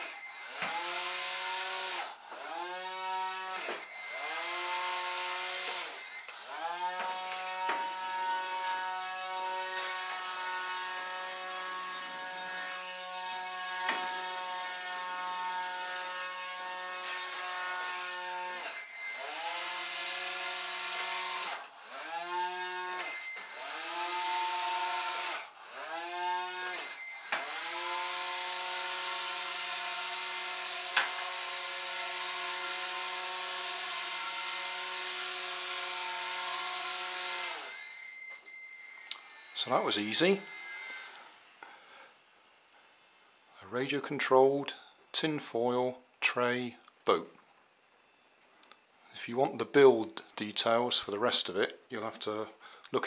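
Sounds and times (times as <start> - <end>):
electric motor buzzing whine: 0.0 - 41.5.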